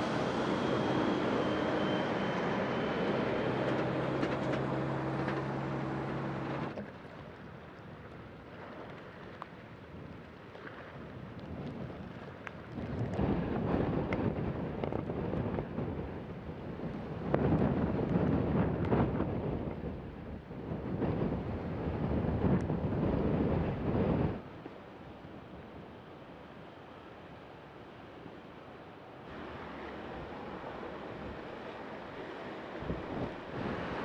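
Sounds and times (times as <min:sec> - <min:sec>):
highway traffic passing: 0:00.0 - 0:06.8, 0:29.3 - 0:34.0
churning surf: 0:00.0 - 0:07.3, 0:12.0 - 0:34.0
wind buffeting microphone: 0:09.9 - 0:24.5, 0:29.3 - 0:34.0.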